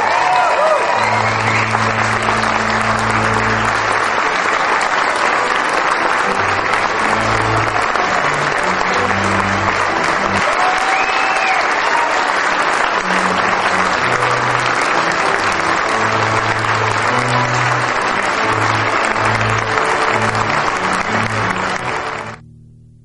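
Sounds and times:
congregation applauding: 0.0 - 22.4
music with low bass line: 22.2 - 23.0.

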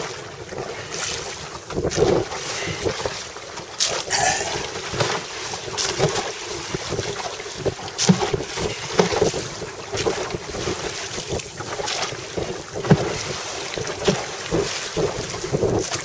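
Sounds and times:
water splashing against hull: 0.0 - 16.0
wind buffeting microphone: 4.5 - 16.0.

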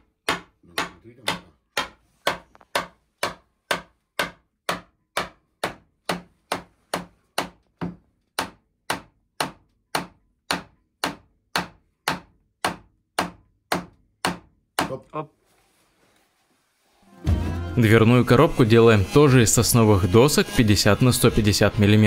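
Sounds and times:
knocking on wood: 0.2 - 15.0.

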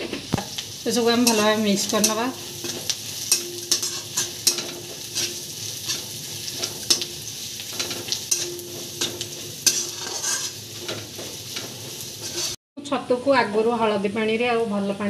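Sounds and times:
onions sizzling in hot oil: 0.0 - 12.6
metal spatula scraping pan: 0.9 - 12.6.

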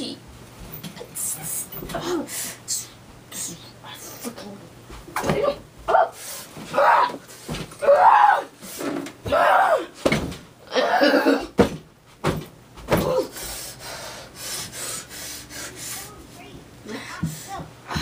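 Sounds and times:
person yelling and screaming: 6.7 - 7.2, 7.8 - 8.5, 9.3 - 9.9
thumps of thrown bedding: 11.6 - 13.2.

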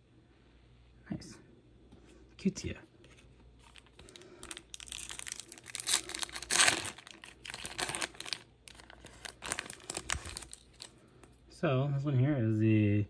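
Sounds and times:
foil wrapper crinkling: 3.6 - 11.0.

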